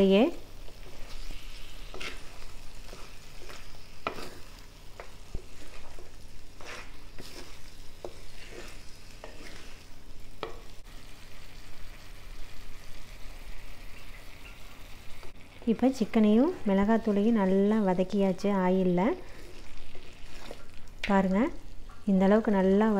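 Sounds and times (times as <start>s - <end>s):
chicken sizzling in oil: 0.0s - 17.8s, 18.6s - 22.1s
wooden spatula scraping a pan: 0.6s - 10.6s, 19.2s - 20.9s.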